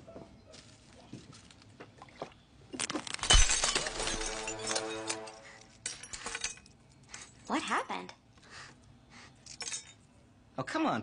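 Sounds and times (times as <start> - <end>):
glass shattering: 2.8 - 6.7, 9.5 - 10.0
small glass clinks: 3.2 - 6.7, 9.5 - 10.0.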